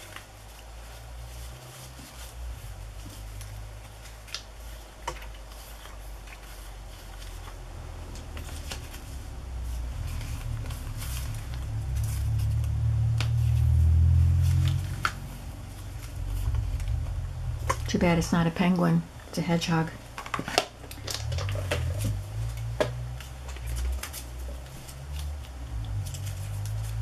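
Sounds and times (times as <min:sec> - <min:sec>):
cardstock tags rustling: 0:00.0 - 0:19.0, 0:19.7 - 0:27.0
low hum: 0:07.7 - 0:20.0.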